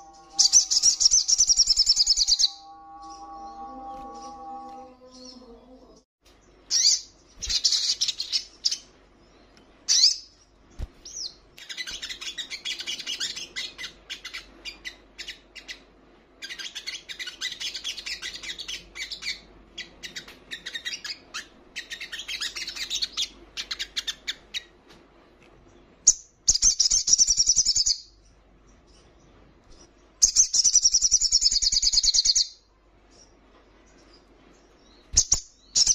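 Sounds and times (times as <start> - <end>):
bird twittering: 0.0 - 5.5.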